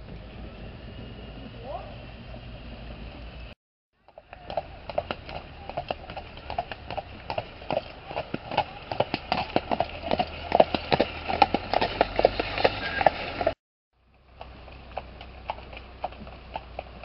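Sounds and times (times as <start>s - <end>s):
horse hooves clip-clopping on gravel: 4.1s - 17.0s.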